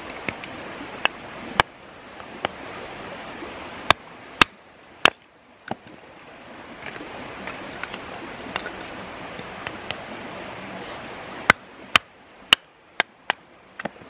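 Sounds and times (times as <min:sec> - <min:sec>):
creek rushing: 0:00.0 - 0:14.0.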